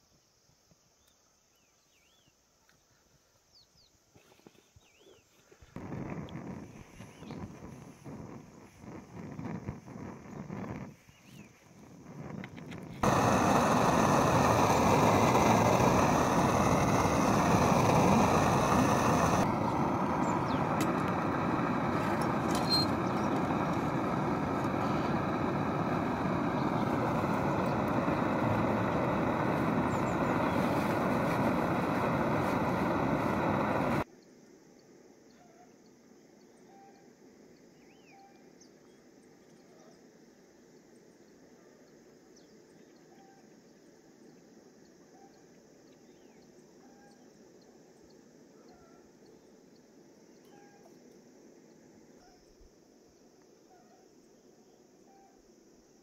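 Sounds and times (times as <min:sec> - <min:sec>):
camping stove burner roaring: 0:05.8 - 0:34.1.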